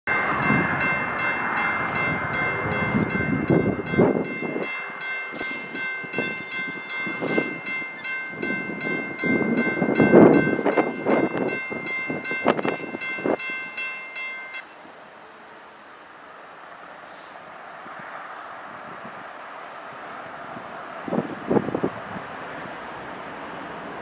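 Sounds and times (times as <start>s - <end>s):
wind buffeting microphone: 0.1s - 13.9s, 20.0s - 22.9s
railroad crossing bell ringing: 0.1s - 16.6s.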